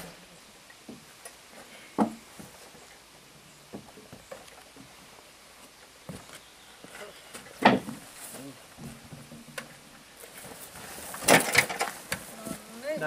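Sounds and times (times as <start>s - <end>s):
knocks and thumps on wooden boards: 2.0s - 2.2s, 7.6s - 8.0s.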